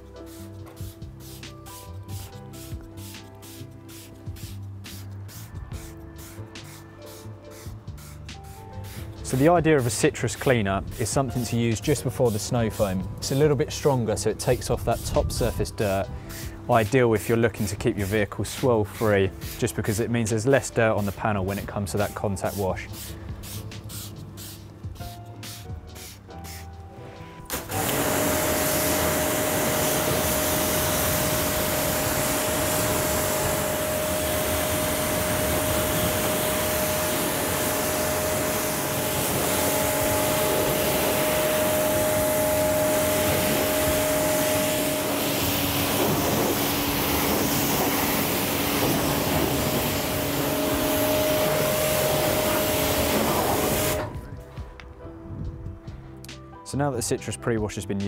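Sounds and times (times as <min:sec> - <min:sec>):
pressure washer spray hissing: 0:00.0 - 0:54.1
pressure washer motor hum: 0:27.4 - 0:54.3.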